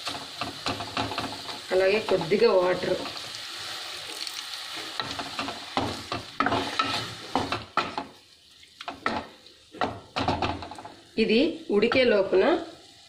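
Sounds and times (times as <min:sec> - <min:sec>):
wooden spatula scraping a pan: 0:00.0 - 0:08.2
vegetables sizzling in a pan: 0:00.0 - 0:13.0.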